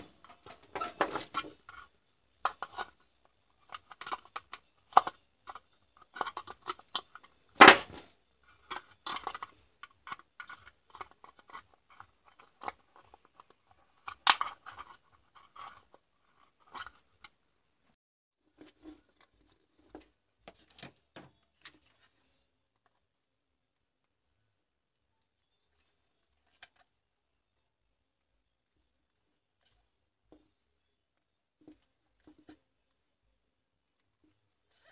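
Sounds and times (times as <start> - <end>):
loud plastic snap: 7.6 - 8.0.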